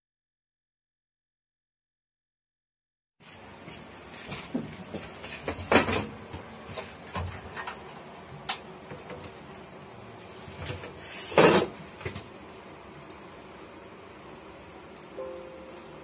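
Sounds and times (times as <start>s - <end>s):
scrape: 11.0s - 11.7s.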